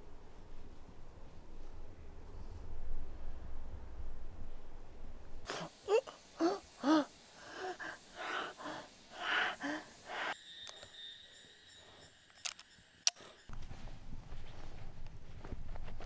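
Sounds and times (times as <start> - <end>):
low steady noise: 0.0 - 10.4
man groaning and breathing: 5.5 - 10.4.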